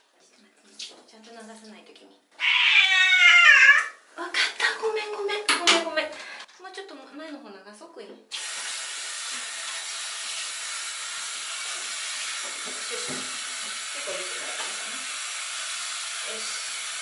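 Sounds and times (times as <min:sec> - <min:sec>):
shower head spraying water: 0:08.3 - 0:17.0.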